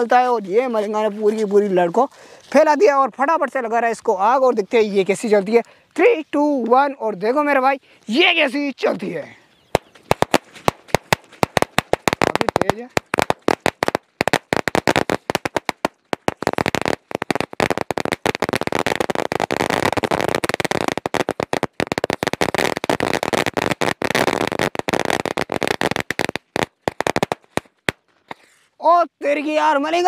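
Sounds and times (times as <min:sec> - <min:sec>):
firecracker string crackling: 0:00.0 - 0:28.6.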